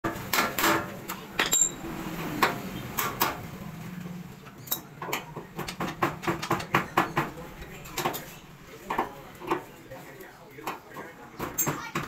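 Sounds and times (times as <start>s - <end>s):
wrench clinking on metal: 1.4s - 1.8s.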